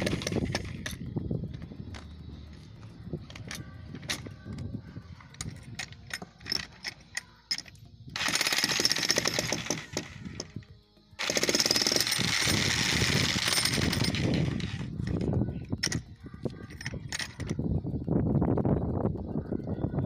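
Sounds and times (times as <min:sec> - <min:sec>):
jackhammer chiselling concrete: 0:08.2 - 0:10.2, 0:11.2 - 0:14.8.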